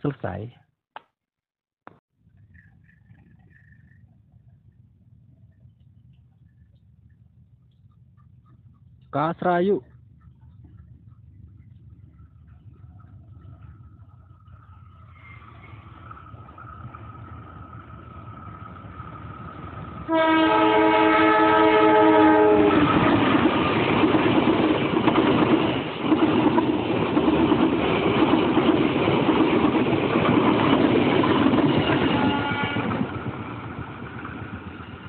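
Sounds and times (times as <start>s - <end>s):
train passing on rails: 2.5s - 35.0s
locomotive horn blast: 20.1s - 23.0s, 32.0s - 33.0s.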